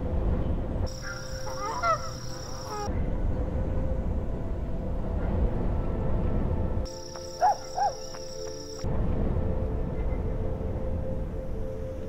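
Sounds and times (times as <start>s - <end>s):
steady low rumble: 0.0s - 12.0s
geese honking: 0.9s - 2.9s, 7.4s - 8.1s.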